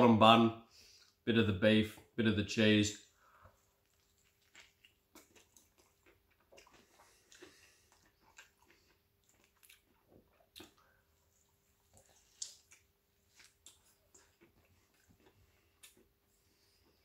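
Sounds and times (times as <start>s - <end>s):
chewing and biting food: 3.5s - 17.0s.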